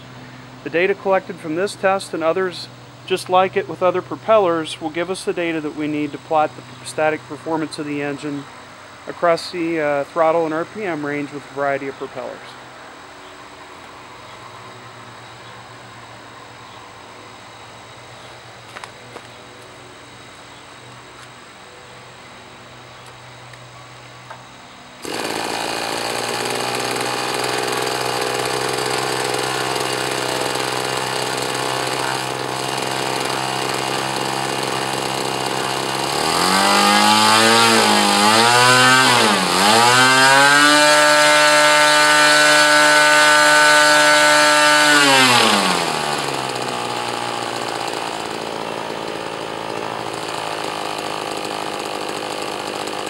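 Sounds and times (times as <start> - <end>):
electric starter: 25.0 - 53.0
model airplane engine whining: 25.0 - 53.0.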